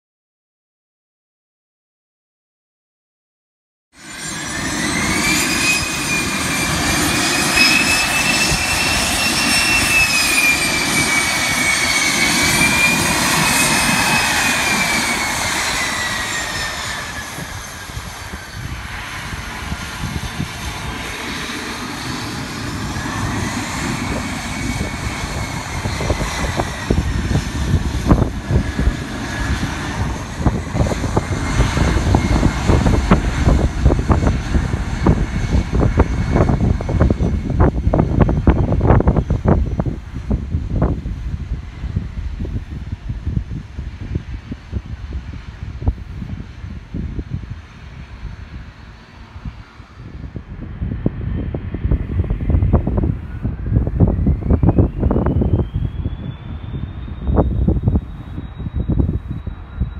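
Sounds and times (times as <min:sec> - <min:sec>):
deep ragged jet rumble: 0:04.0 - 0:59.9
jet engines whining: 0:04.0 - 0:59.9.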